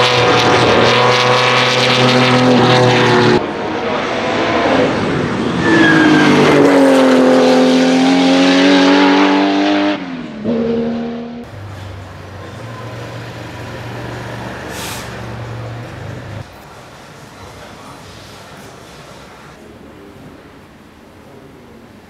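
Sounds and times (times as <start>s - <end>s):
racing car engine passing by: 0.0s - 16.4s.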